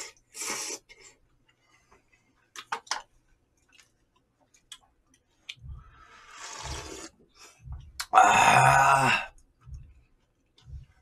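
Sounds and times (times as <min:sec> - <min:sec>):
person chewing noodles: 0:06.2 - 0:07.1.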